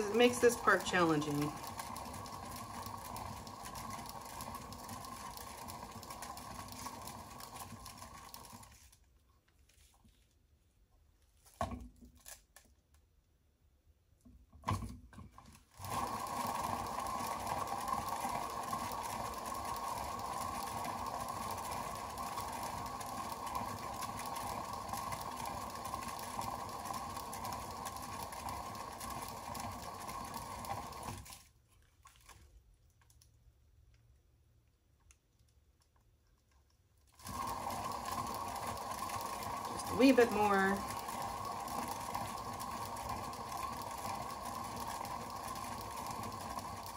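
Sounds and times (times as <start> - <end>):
small electric motor running: 0.0 - 8.6, 15.8 - 31.3, 37.2 - 46.9.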